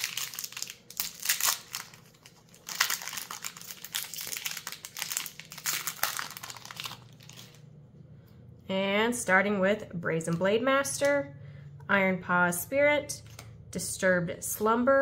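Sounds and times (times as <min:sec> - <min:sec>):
foil wrapper crinkling: 0:00.0 - 0:07.7.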